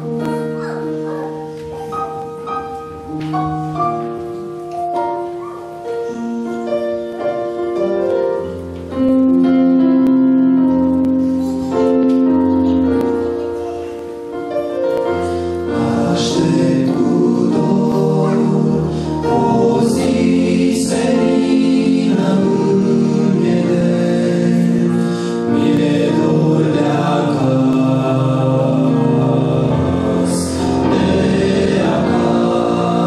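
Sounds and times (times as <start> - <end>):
keyboard playing slow chords: 0.0 - 33.0
men's vocal group singing: 15.7 - 33.0.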